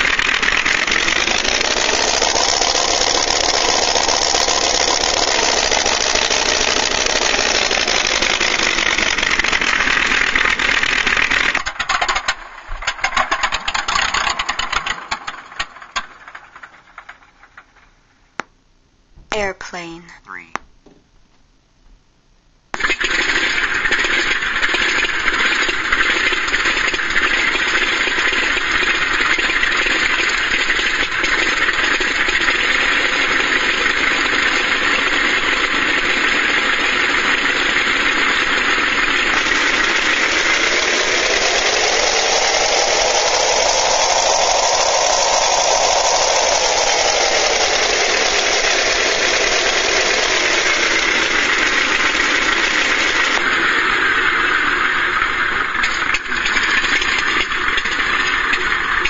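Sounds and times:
radial aircraft engine through small speakers: 0.0 - 11.6, 24.6 - 59.0.

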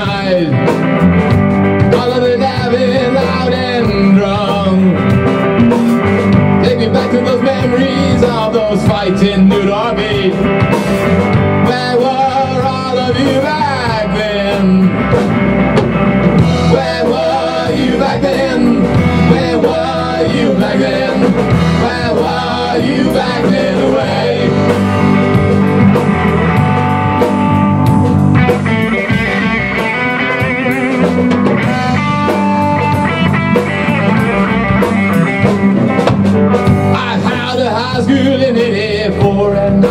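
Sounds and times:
man singing: 0.0 - 0.9, 1.8 - 5.4, 6.5 - 10.8, 11.5 - 15.2, 16.4 - 25.4, 31.5 - 32.4, 36.9 - 39.9
rock band playing live: 0.0 - 39.9.

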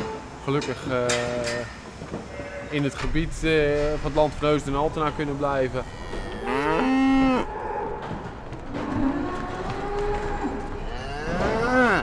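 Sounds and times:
cows mooing: 5.8 - 12.0.

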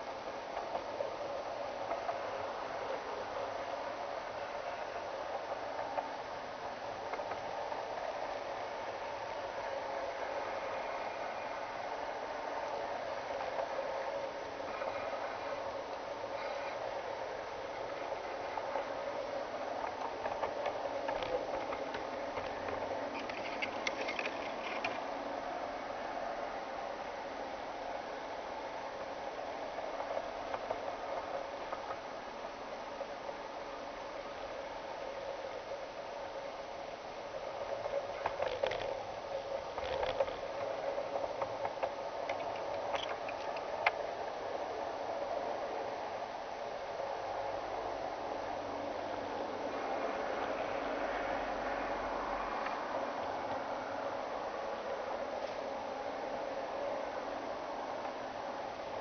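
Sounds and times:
train wheels rolling: 0.0 - 46.2.

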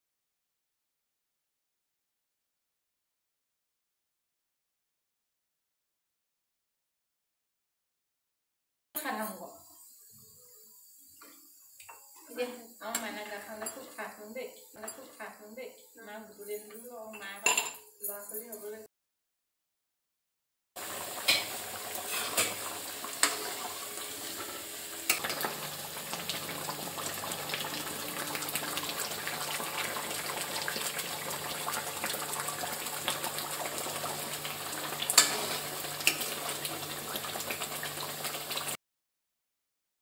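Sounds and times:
metal clinks against pan: 16.6 - 17.8
curry bubbling in a wok: 25.2 - 38.8.

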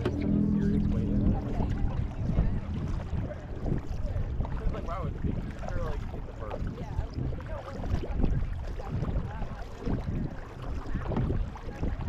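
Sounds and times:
paddles splashing through water: 0.0 - 12.0
wind buffeting microphone: 0.0 - 12.0.

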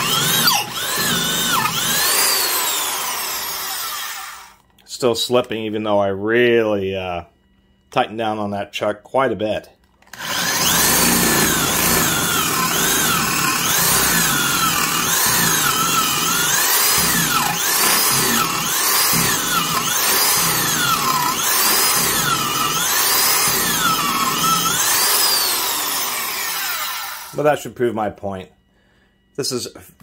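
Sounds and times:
drill boring into wood: 0.0 - 4.6, 10.0 - 27.4.

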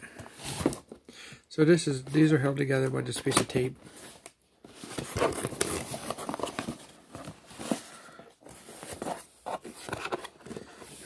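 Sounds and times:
cardboard rustling and scraping: 0.1 - 1.0, 3.2 - 11.0.

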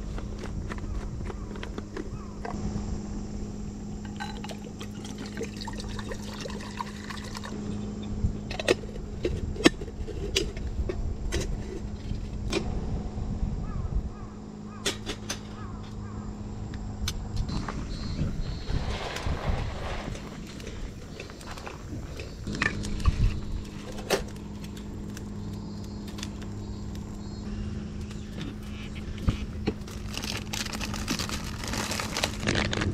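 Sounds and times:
low hum: 0.0 - 32.9
liquid pouring into metal kettle: 4.2 - 7.6.

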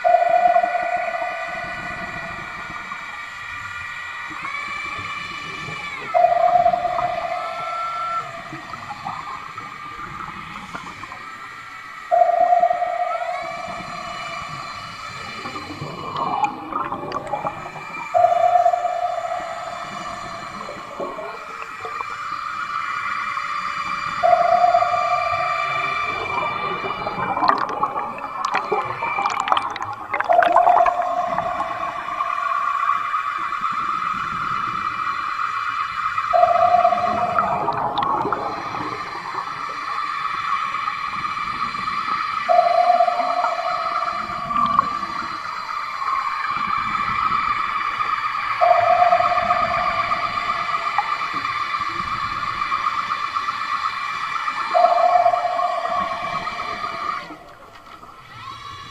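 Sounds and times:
electric motor whining underwater: 0.0 - 58.9
bubbling gurgles: 13.6 - 18.6, 25.7 - 32.5, 36.4 - 39.7
higher tones rising in pitch: 24.2 - 33.5, 36.3 - 39.7.

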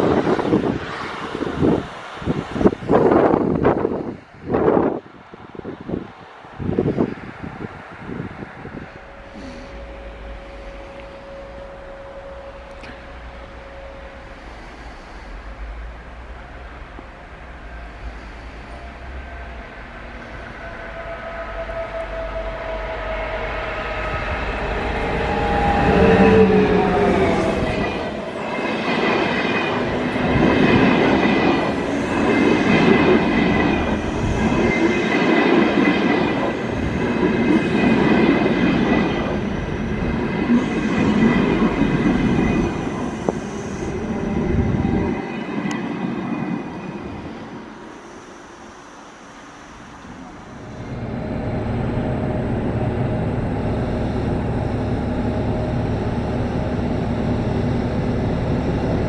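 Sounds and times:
train rail and wheel noise: 0.0 - 59.0
high steady whine: 7.0 - 59.0
steady lower hum: 47.0 - 59.0.

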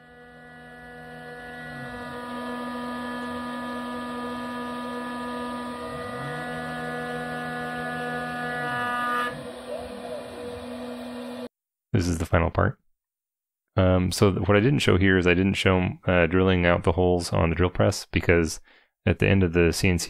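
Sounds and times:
axis motor tone sliding: 0.0 - 11.5
milling spindle whine: 0.0 - 11.5.

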